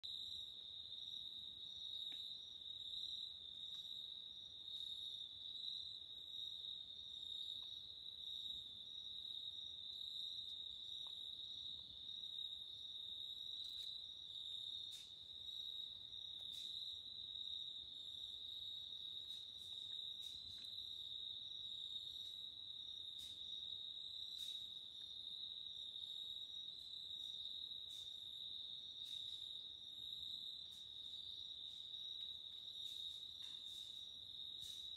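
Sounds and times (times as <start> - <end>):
insects trilling: 11.0 - 34.9.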